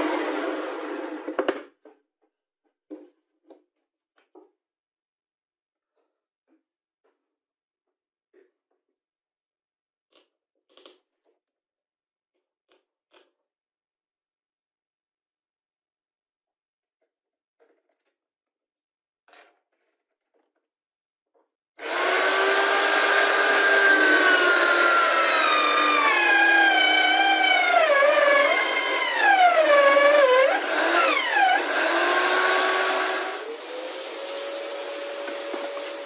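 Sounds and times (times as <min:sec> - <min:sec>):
drill bit boring through wood: 0:21.8 - 0:36.0
drill press motor whining: 0:21.8 - 0:36.0.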